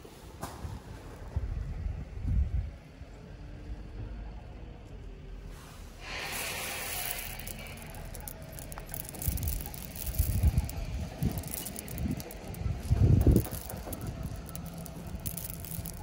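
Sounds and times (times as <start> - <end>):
hand scooping marble chippings: 6.0 - 16.0
wind buffeting microphone: 12.0 - 14.4.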